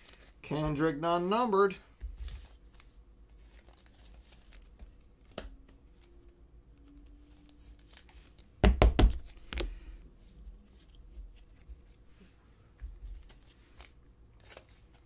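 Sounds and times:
plastic sleeve rustling and sliding: 0.0s - 0.5s, 2.0s - 5.0s.

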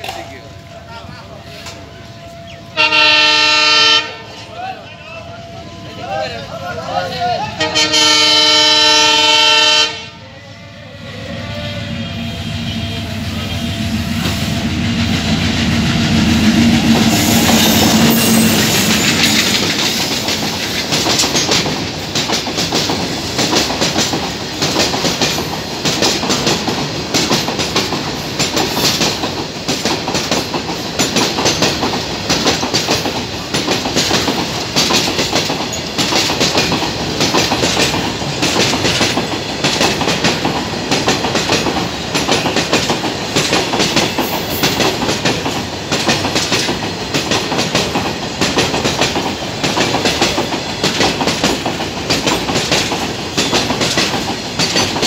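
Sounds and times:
diesel locomotive engine: 0.0s - 55.0s
train wheels clickety-clack: 13.6s - 55.0s.

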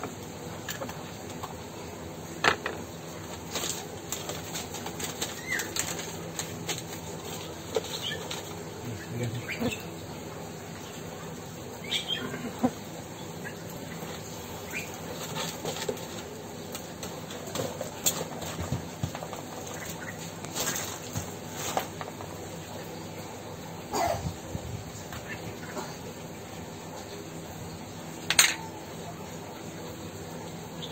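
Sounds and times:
paper and plastic bag rustling: 3.2s - 8.7s, 14.9s - 22.0s.

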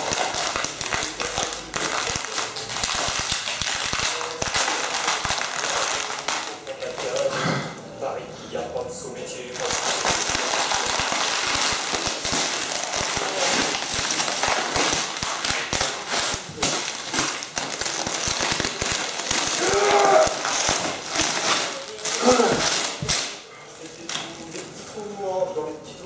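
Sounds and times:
parcel tape ripping and crackling: 0.0s - 7.4s, 9.4s - 24.8s.

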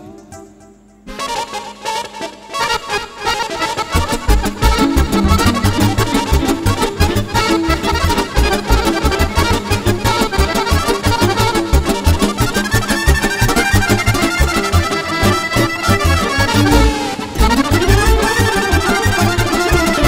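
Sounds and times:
accordion: 0.0s - 20.0s
electric keyboard: 0.0s - 20.0s
violin: 1.1s - 20.0s
bass and drums beat: 3.9s - 20.0s.

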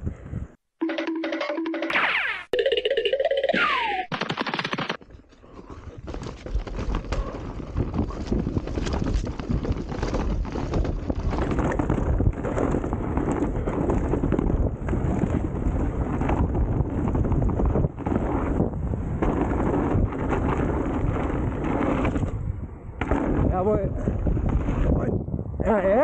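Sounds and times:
wind noise on microphone: 0.0s - 0.6s, 5.6s - 26.0s
bike rattling and knocking: 5.8s - 22.4s.

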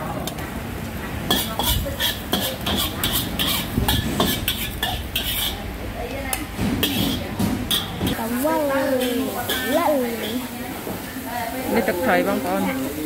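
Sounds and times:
metal spatula scraping wok: 1.3s - 5.7s, 6.8s - 10.6s.

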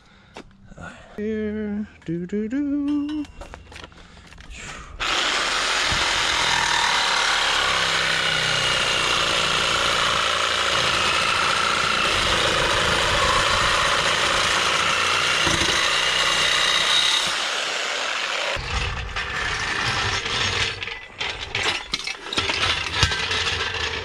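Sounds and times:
power saw cutting steel pipe: 5.0s - 24.0s.

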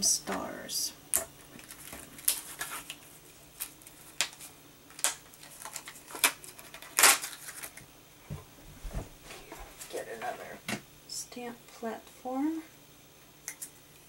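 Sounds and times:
plastic sheets crinkling: 1.3s - 7.9s.

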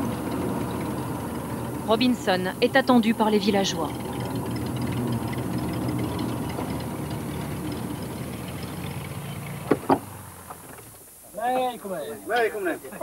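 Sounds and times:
propeller plane engine droning: 0.0s - 11.0s
sharp knocks: 9.6s - 10.9s.

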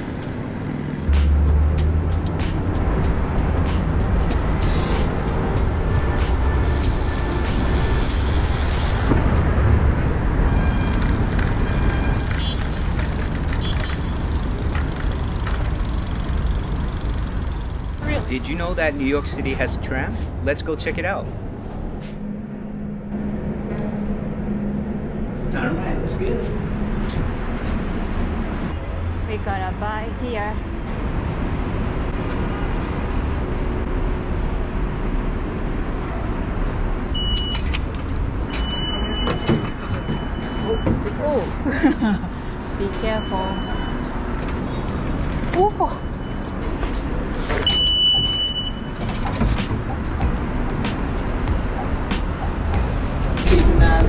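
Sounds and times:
city street traffic: 0.0s - 54.0s
vending machine beeping: 37.2s - 37.6s, 47.7s - 48.9s.

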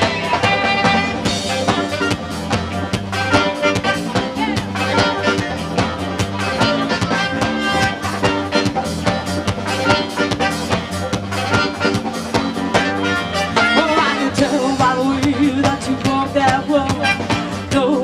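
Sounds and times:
blues band playing: 0.0s - 18.0s
drums beating: 0.0s - 18.0s
electric guitar: 0.0s - 18.0s
person singing: 13.6s - 18.0s.

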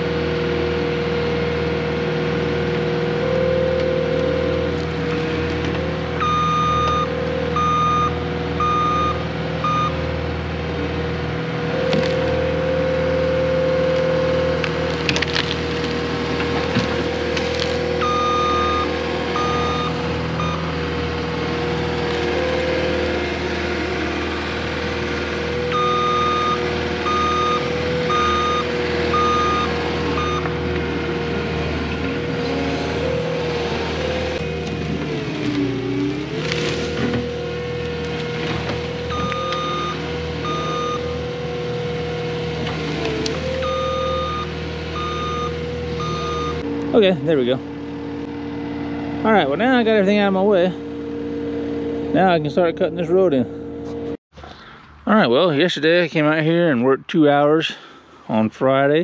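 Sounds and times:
diesel engine running under load: 0.0s - 56.7s
hydraulic whine: 1.9s - 55.0s
reversing alarm beeping: 6.2s - 10.0s, 18.0s - 20.7s, 25.7s - 30.5s, 39.1s - 41.2s, 43.5s - 46.7s
wood cracking and breaking: 14.6s - 17.8s.

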